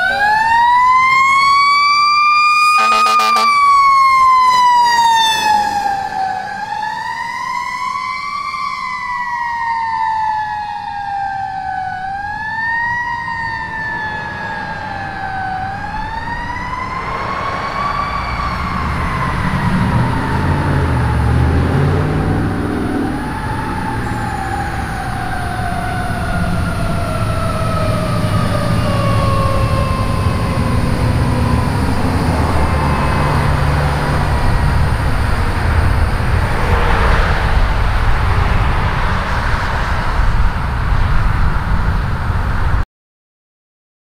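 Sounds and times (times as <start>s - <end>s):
fire engine siren wailing: 0.0s - 41.4s
truck engine and road rumble: 0.0s - 42.8s
horn blast: 2.7s - 3.8s.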